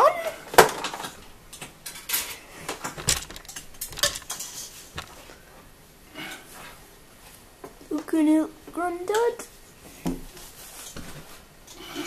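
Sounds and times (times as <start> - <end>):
plastic and metal parts clinking: 2.1 - 5.2.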